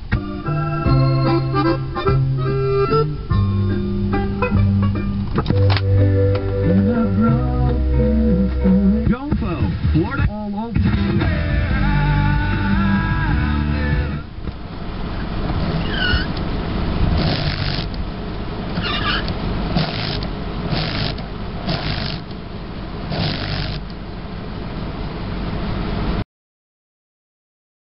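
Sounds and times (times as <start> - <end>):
car engine low rumble: 0.0 - 26.2
short hissing bursts: 17.1 - 17.9, 19.7 - 22.3, 23.1 - 23.9.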